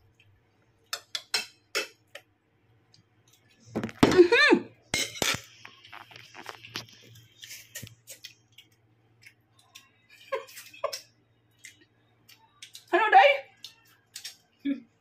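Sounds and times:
cutlery clinking on plates: 0.9s - 2.0s, 4.9s - 5.5s.

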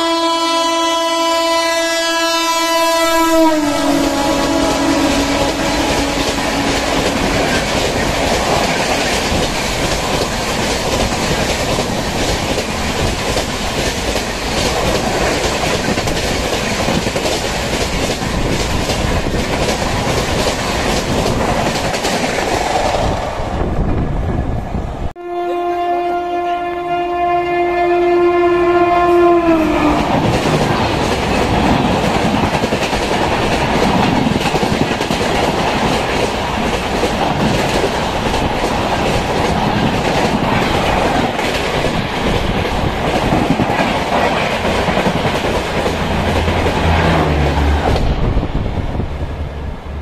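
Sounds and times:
train horn: 0.0s - 7.7s, 25.2s - 30.4s
train wheels clickety-clack: 4.0s - 23.3s, 29.8s - 48.4s.

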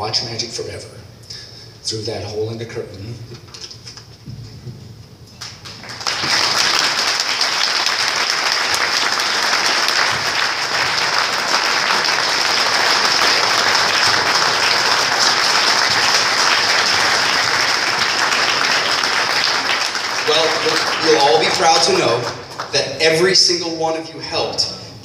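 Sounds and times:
audience applauding: 5.4s - 23.5s.

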